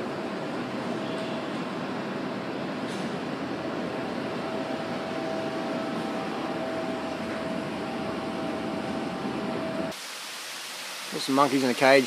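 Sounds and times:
machine hiss with thin whine: 0:09.3 - 0:12.0.

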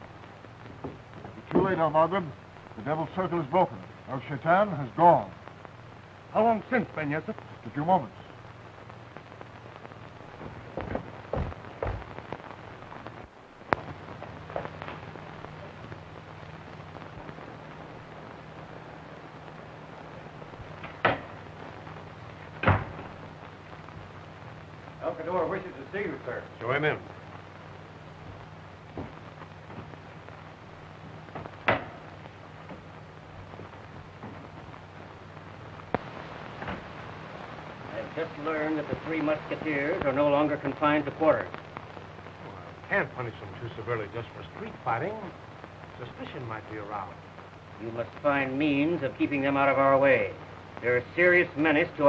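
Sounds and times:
film soundtrack crackle and hiss: 0:00.0 - 0:52.0
steady low hum: 0:00.0 - 0:52.0
knocks: 0:10.8 - 0:12.1, 0:31.6 - 0:32.0.

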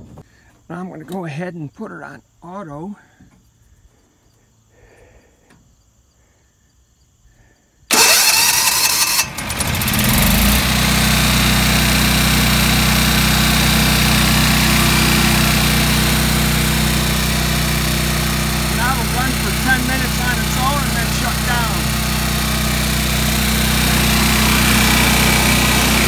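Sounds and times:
generator engine starting and running: 0:07.9 - 0:26.0.

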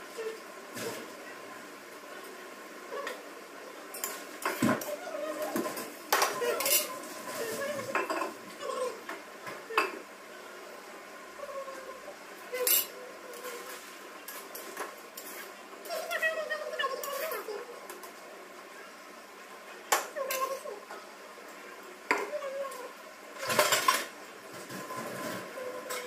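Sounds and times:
dishes and utensils clattering: 0:03.9 - 0:08.8, 0:12.5 - 0:16.2, 0:23.4 - 0:26.0.

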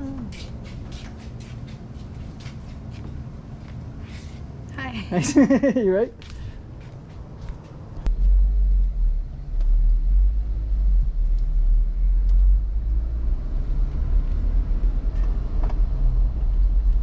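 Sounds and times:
car engine and road noise: 0:06.4 - 0:17.0.

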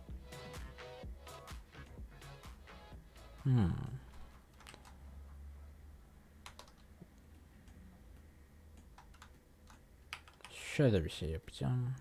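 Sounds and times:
keyboard and mouse clicks: 0:04.1 - 0:05.0, 0:06.4 - 0:10.6.

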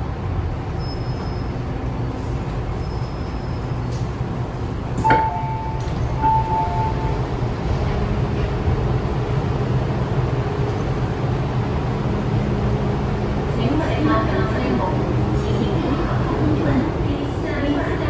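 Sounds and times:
train low hum: 0:00.0 - 0:18.0
train doors releasing clunk: 0:04.8 - 0:07.2
door chime beeps: 0:05.0 - 0:07.2.

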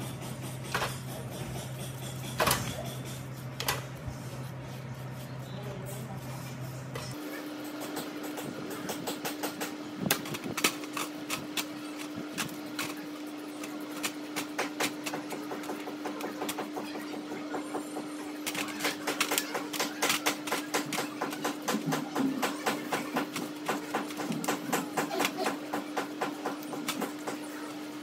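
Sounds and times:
brush scrubbing metal parts: 0:18.0 - 0:27.4.

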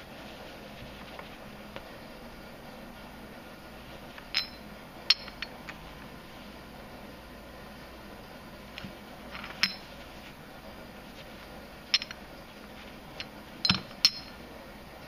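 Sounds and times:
metal bars clinking: 0:04.3 - 0:05.8, 0:09.3 - 0:09.9, 0:11.9 - 0:12.3, 0:13.2 - 0:14.4.

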